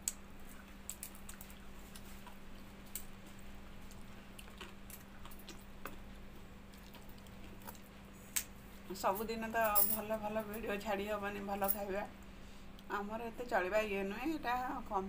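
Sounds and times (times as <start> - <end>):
steady low hum: 0.0 - 15.0
chewing and mouth smacks: 0.1 - 8.6.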